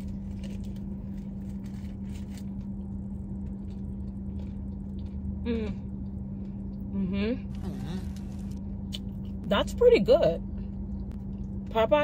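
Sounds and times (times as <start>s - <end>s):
steady low hum: 0.0s - 12.0s
chewing: 0.2s - 6.8s
crunchy biting: 7.5s - 9.1s.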